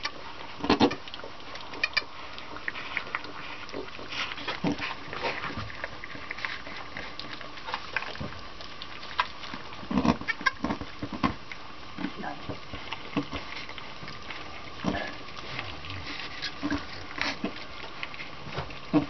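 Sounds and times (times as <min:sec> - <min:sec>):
goat wet licking: 0:00.0 - 0:10.6
straw rustling: 0:00.0 - 0:19.0.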